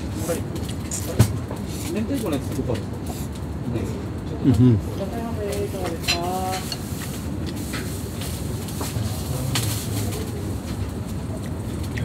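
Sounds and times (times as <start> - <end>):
steady sizzling hiss: 0.0 - 12.0
bowls and utensils clinking: 5.8 - 7.9.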